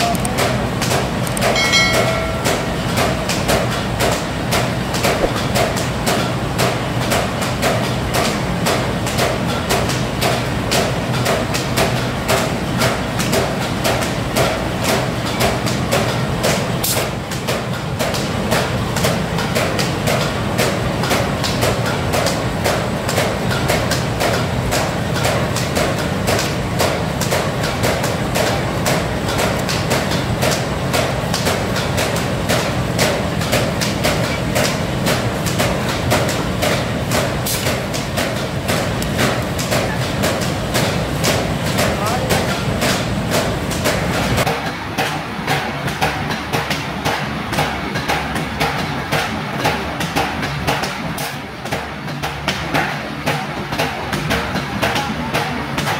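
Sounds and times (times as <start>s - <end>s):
bag making machine clattering: 0.0s - 55.9s.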